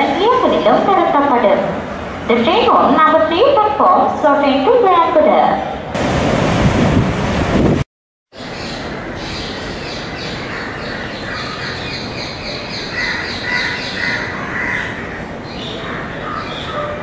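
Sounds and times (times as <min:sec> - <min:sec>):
birds squawking: 0:08.6 - 0:17.0.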